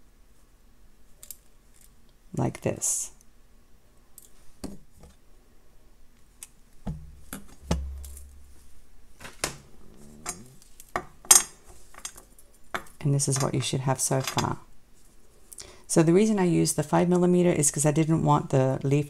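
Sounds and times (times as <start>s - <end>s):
soft low thud: 6.8s - 8.6s.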